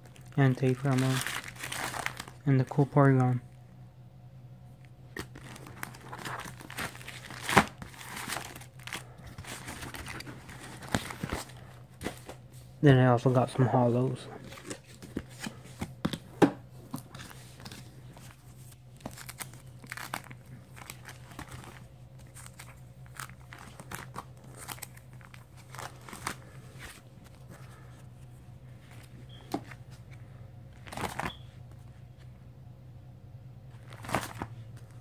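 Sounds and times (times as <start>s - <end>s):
plastic pages crinkling: 0.1s - 2.4s, 5.2s - 12.4s, 16.9s - 28.0s, 30.8s - 31.4s, 33.8s - 35.0s.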